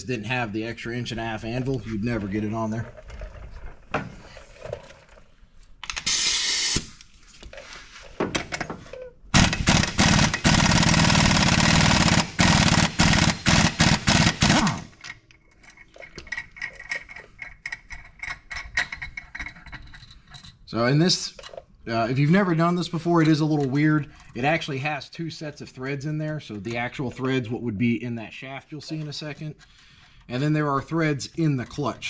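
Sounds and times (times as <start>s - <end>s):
pneumatic impact wrench hammering: 5.9s - 6.9s, 9.4s - 15.0s.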